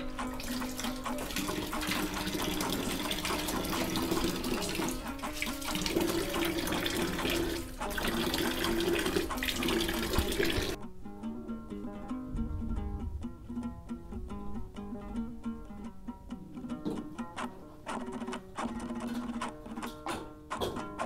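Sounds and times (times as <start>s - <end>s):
tap water splashing over hands: 0.2s - 10.8s.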